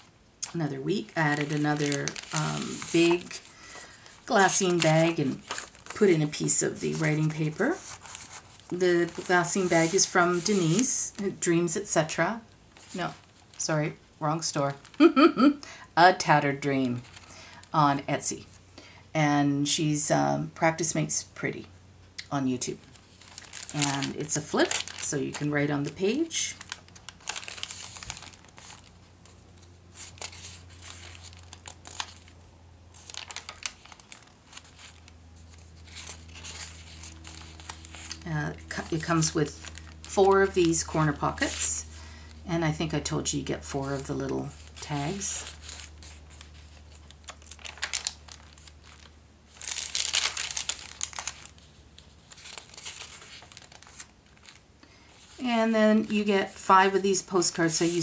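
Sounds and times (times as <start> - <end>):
paper pages rustling and crinkling: 0.0 - 11.0, 12.7 - 13.6, 22.8 - 42.4, 43.5 - 55.4, 57.5 - 58.0.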